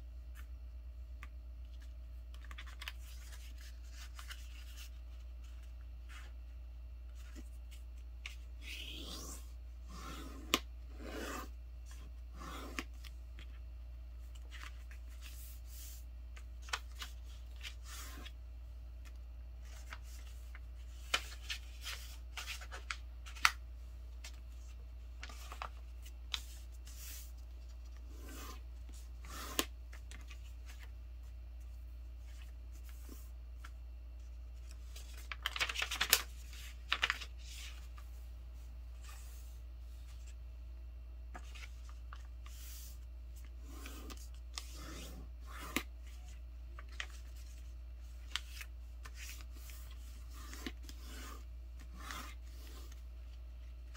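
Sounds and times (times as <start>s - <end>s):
paper rustling and crackling: 34.6s - 38.0s.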